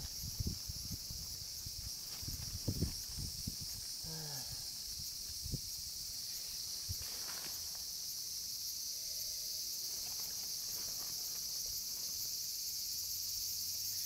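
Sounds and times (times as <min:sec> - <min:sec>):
insects chorus: 0:00.0 - 0:14.0
man humming: 0:04.0 - 0:04.8.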